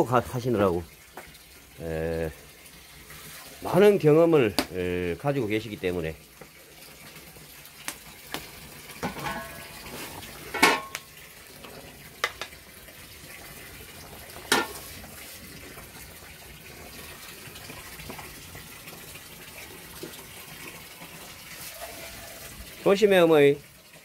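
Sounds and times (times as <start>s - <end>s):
water boiling: 0.0s - 24.0s
wooden paddle knocking metal pot: 10.6s - 11.0s.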